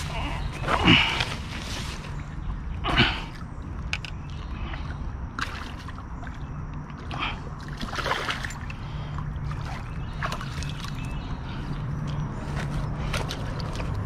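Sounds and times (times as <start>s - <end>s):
fish splashing in water: 4.5s - 11.7s.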